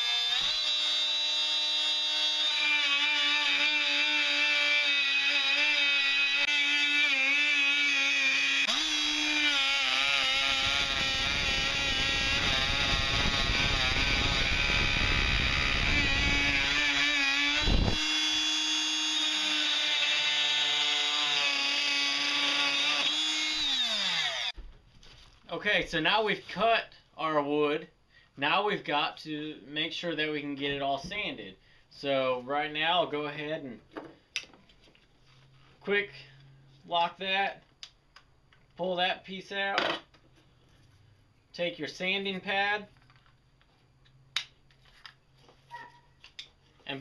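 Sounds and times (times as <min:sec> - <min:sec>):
oscillating multi-tool cutting wood: 0:00.0 - 0:24.6.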